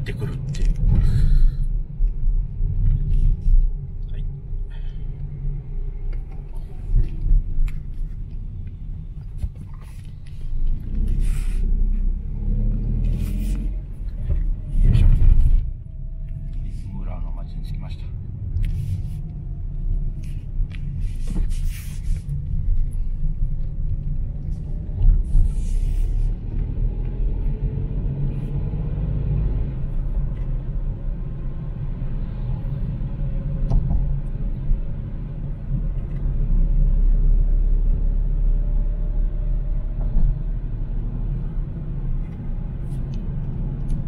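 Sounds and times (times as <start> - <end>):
car engine and road rumble: 0.0 - 44.0.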